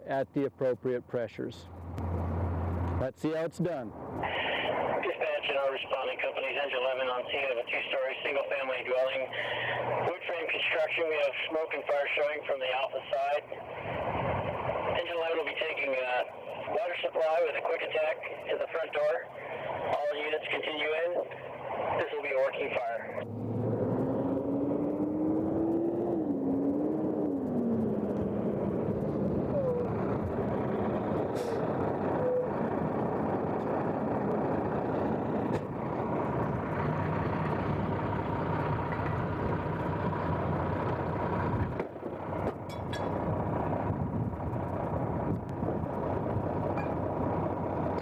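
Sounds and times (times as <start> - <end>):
diesel engine running: 0.9 - 3.1, 3.7 - 48.0
siren: 23.0 - 33.0.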